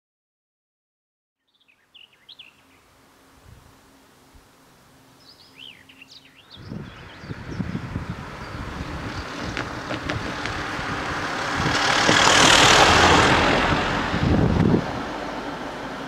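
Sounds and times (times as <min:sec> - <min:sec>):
van driving past: 0:06.5 - 0:16.0.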